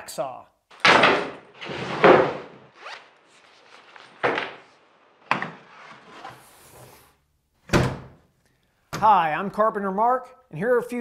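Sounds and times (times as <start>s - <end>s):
zipper on soft bag: 2.7s - 4.0s.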